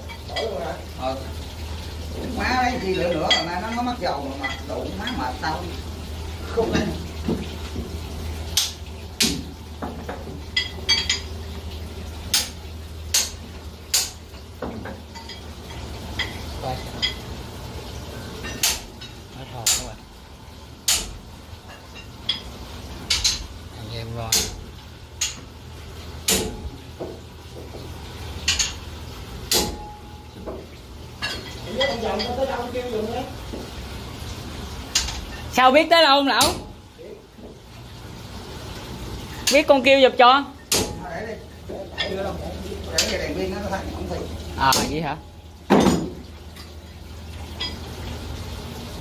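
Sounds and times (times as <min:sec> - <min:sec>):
sharp metal clanks: 0:26.3 - 0:26.7.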